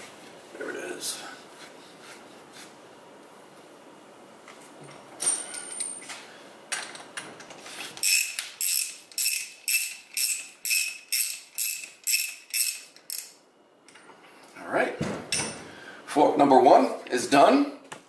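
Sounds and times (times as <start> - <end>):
ratchet wrench clicking: 8.0 - 13.4.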